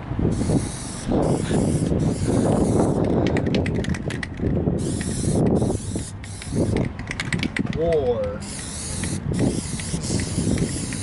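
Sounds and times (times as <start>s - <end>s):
aerosol spray can hissing: 0.3s - 3.0s, 4.8s - 6.8s, 8.4s - 11.0s
sharp clicks: 6.2s - 11.0s.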